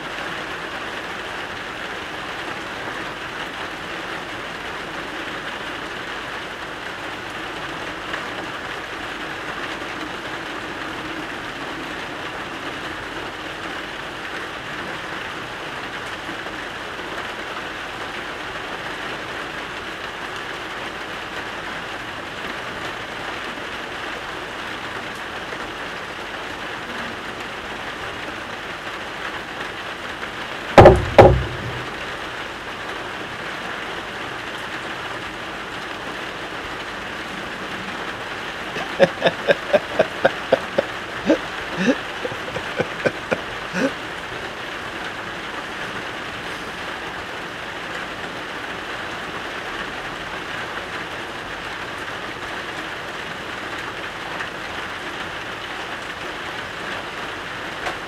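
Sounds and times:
steady rain falling: 0.0 - 58.0
loud knocks: 30.8 - 32.0.

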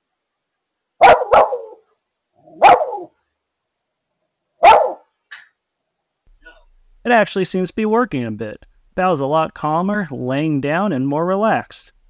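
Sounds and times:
dog barking: 1.0 - 3.2, 4.6 - 5.1.

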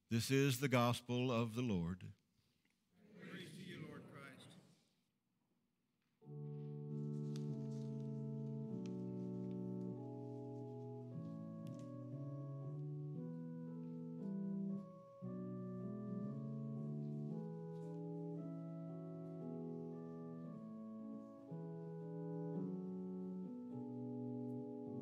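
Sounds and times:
slow keyboard music: 6.2 - 25.0.

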